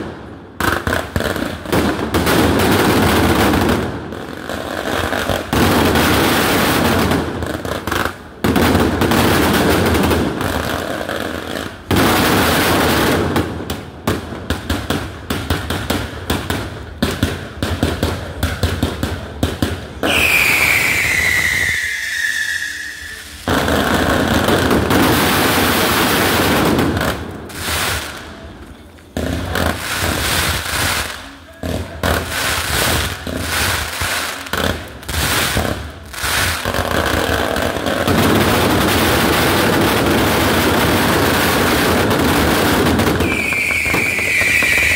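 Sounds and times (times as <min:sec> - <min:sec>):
fireworks crackling and banging: 0:00.0 - 0:44.9
falling firework whistle: 0:20.0 - 0:24.3, 0:43.1 - 0:44.9.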